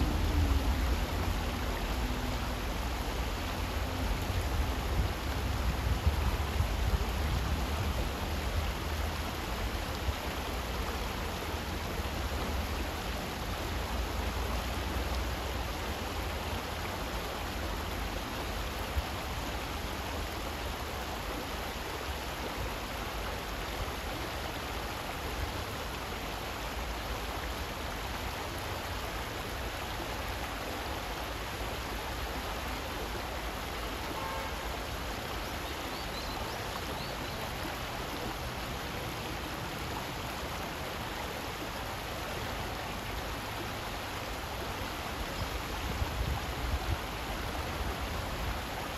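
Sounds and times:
stream running over rocks: 0:00.0 - 0:48.9.

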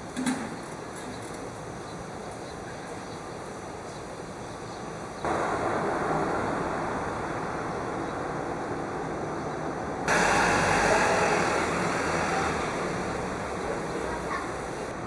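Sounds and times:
regional jet engine noise: 0:00.0 - 0:15.0
jet airliner landing noise: 0:05.3 - 0:15.0.

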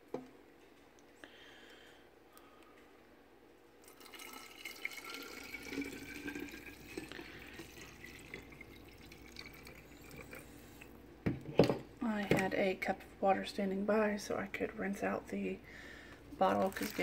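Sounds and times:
liquid pouring and trickling: 0:03.8 - 0:11.0, 0:16.4 - 0:17.0.

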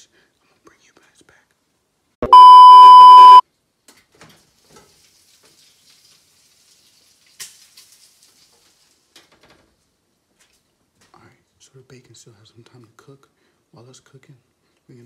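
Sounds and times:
test-tone beep: 0:02.2 - 0:03.4
food frying with sizzle: 0:03.9 - 0:10.8.

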